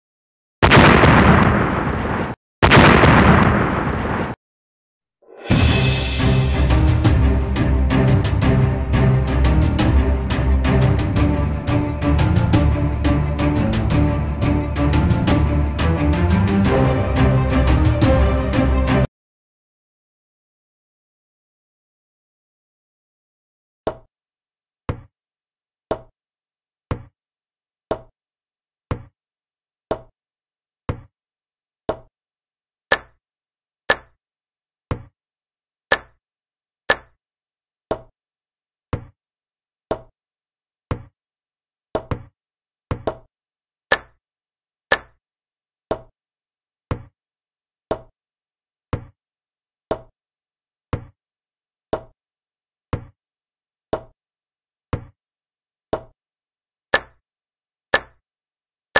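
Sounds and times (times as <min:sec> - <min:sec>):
wooden click sound effect: 0:32.9 - 0:33.2, 0:35.9 - 0:36.2, 0:43.9 - 0:44.2, 0:44.9 - 0:45.2.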